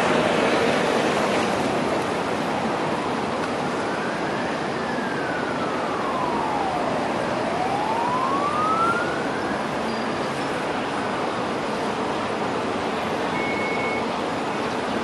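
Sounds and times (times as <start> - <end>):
emergency vehicle siren wailing: 3.0 - 11.2.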